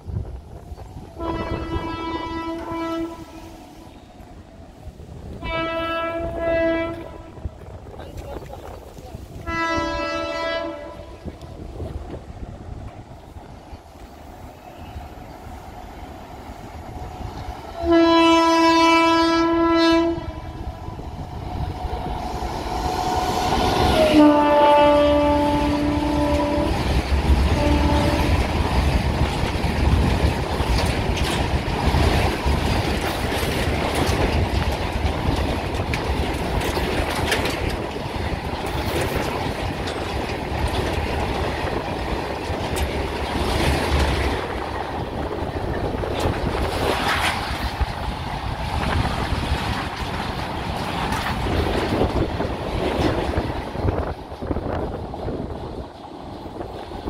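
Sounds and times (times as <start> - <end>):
train rumbling past: 0.0 - 57.0
train horn blasts: 1.2 - 3.8, 5.4 - 7.4, 9.4 - 11.3, 17.8 - 20.6, 23.6 - 28.4
wheels clacking over rail joints: 5.3 - 57.0.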